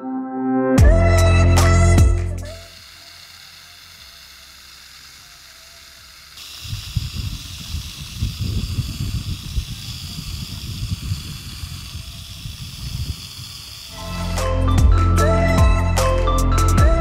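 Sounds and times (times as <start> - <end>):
watering wand spraying water: 1.1 - 14.9.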